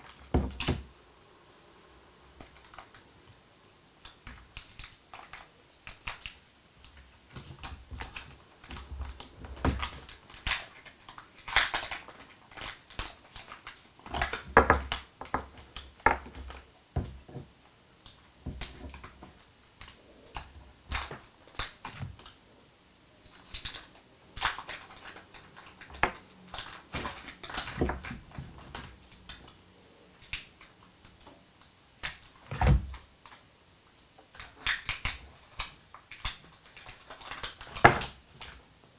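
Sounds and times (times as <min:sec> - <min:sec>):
plastic wrappers crinkling: 0:04.0 - 0:22.4, 0:23.3 - 0:29.6, 0:34.3 - 0:38.6.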